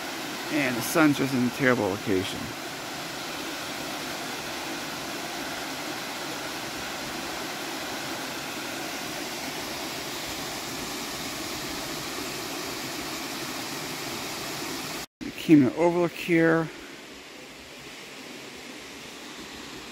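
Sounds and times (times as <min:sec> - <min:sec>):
waterfall rushing: 0:00.0 - 0:15.1.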